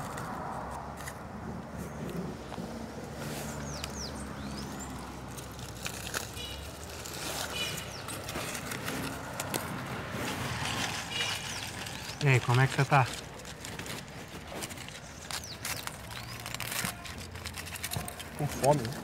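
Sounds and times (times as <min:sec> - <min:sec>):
street traffic hum: 0:00.0 - 0:19.0
aluminium foil crinkling: 0:04.6 - 0:19.0.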